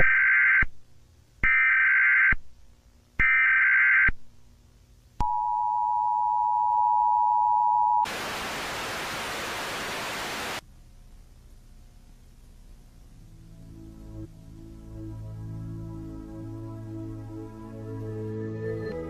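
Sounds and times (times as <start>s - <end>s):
loud static: 8.1s - 14.8s.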